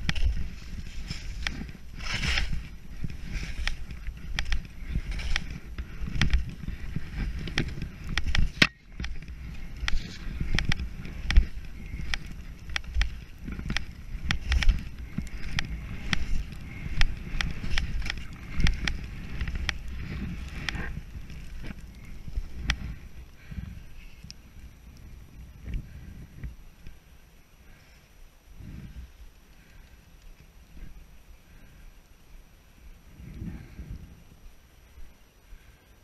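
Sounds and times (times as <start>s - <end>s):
skis scraping over snow: 0.0s - 26.7s
wind rumbling on microphone: 0.0s - 36.0s
sharp clicks and knocks: 1.1s - 21.8s.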